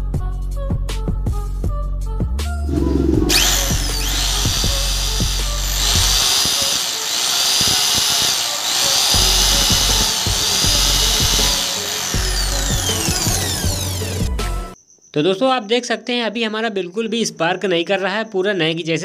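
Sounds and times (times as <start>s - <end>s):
electric motor whining: 2.7s - 14.8s.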